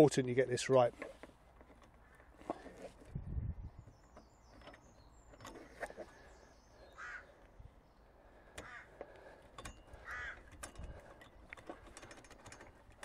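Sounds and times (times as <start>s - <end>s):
crow cawing: 6.9s - 7.4s, 8.4s - 9.3s, 10.0s - 10.5s
metal cable clicks: 8.6s - 13.0s.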